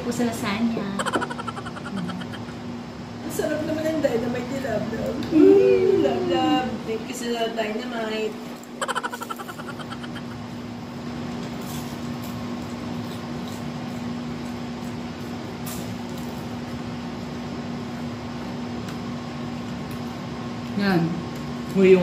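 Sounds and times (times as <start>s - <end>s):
steady mechanical hum: 0.0s - 22.0s
chewing crunchy food: 11.3s - 16.9s.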